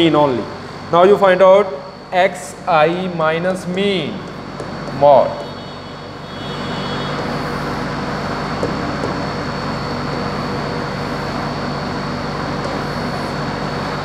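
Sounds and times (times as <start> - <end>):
mechanical drone with whine: 0.0 - 14.0.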